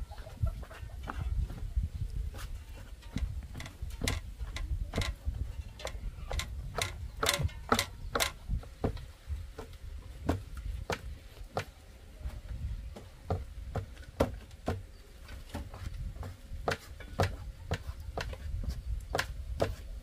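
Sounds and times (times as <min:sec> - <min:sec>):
sharp clicks and taps: 0:05.8 - 0:08.4.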